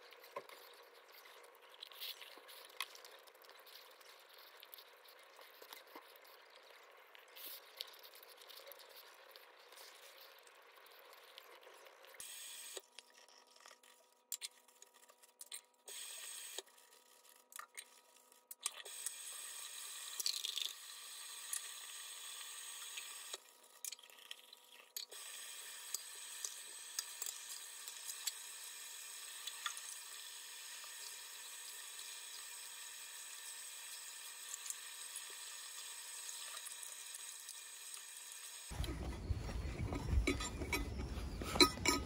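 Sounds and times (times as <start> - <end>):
cutlery clinking against ceramic bowl: 39.9 - 42.0.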